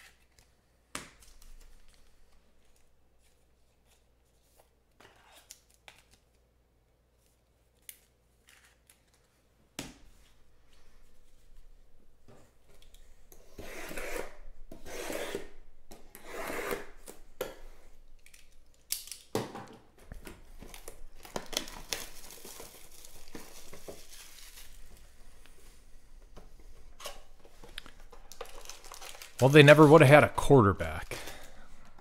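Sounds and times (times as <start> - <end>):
crinkling and rustling: 19.9 - 32.0
wrapping tearing: 20.7 - 25.1, 27.8 - 30.2.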